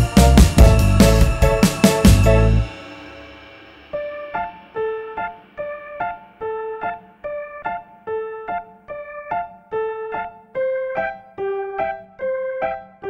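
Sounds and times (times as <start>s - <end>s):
gentle piano notes: 3.9s - 13.0s.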